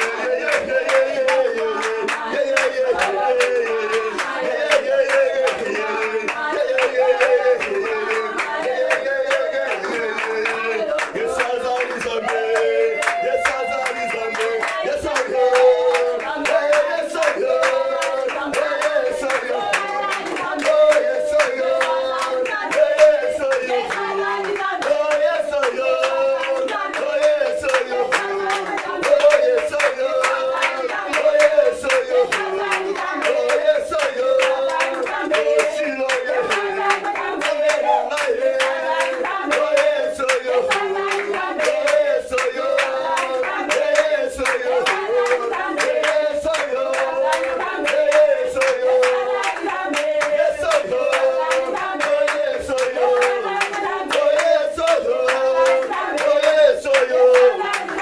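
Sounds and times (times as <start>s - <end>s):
congregation singing: 0.0s - 58.0s
rhythmic hand clapping: 0.0s - 58.0s.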